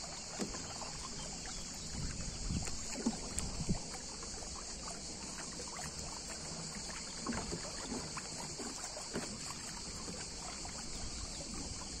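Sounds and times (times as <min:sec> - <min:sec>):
water lapping against boat hull: 0:00.0 - 0:12.0.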